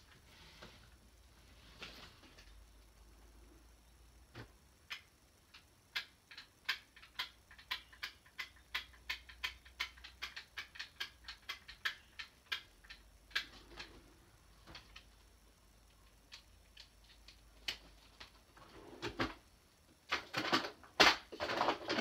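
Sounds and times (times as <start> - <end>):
sharp irregular clicks and taps: 4.3 - 18.4.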